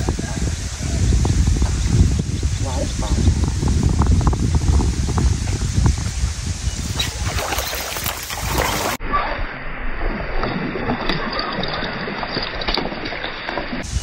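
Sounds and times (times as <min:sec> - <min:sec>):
wind on microphone: 0:00.0 - 0:09.0, 0:13.8 - 0:14.0.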